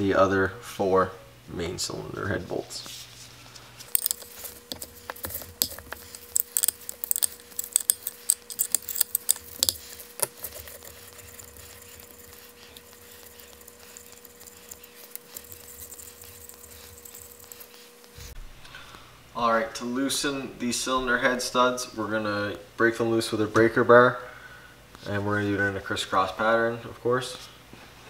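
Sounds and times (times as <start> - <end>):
faint steady hum: 0.0 - 28.0
metallic tool clicks: 3.9 - 17.6.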